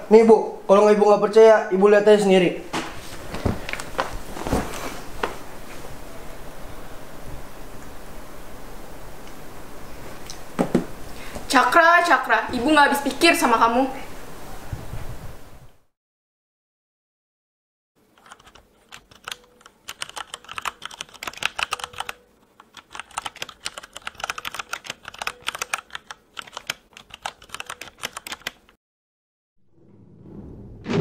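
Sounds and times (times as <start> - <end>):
keyboard typing clicks: 18.2 - 28.8.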